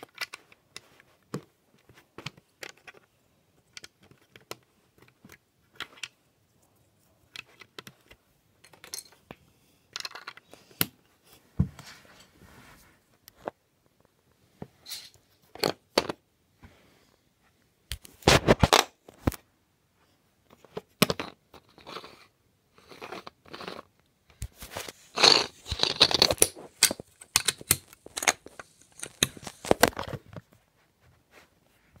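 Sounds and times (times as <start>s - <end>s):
plastic bricks clicking: 2.2s - 6.2s, 9.9s - 10.6s, 25.2s - 30.1s.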